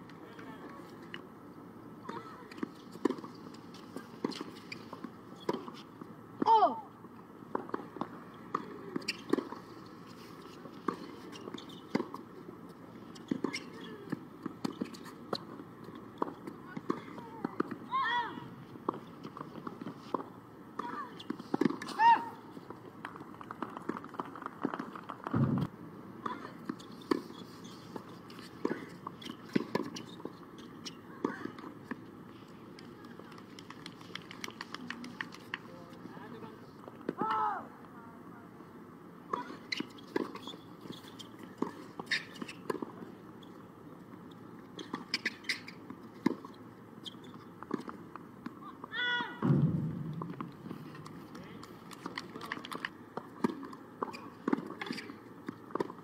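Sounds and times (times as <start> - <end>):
short low thump: 25.3 - 25.7, 49.4 - 50.8
tennis ball bouncing and struck: 49.4 - 51.2.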